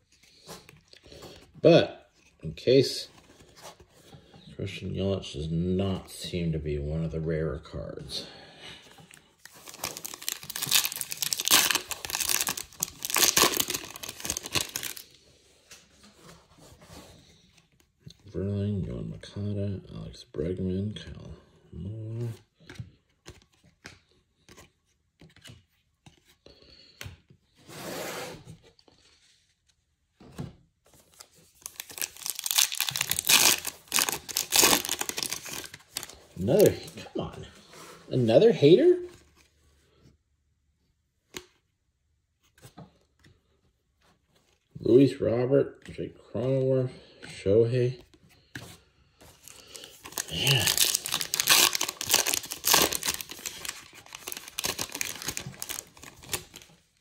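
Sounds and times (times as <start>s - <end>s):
foil wrapper crinkling and tearing: 9.4s - 15.0s, 31.5s - 36.9s, 49.5s - 56.7s.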